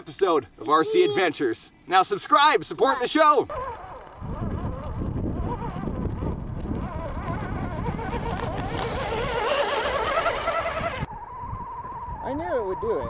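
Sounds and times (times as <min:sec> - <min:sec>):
wavering high tone: 0:09.0 - 0:13.0.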